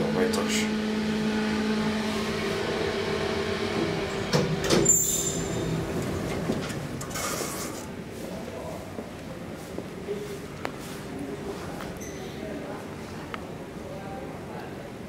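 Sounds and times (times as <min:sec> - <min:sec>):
steady elevator hum: 0:00.0 - 0:15.0
elevator doors sliding open: 0:01.3 - 0:08.0.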